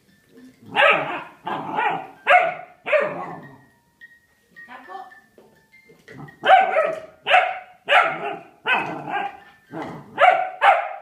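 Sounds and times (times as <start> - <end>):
puppy barking: 0.7 - 3.5, 6.4 - 11.0.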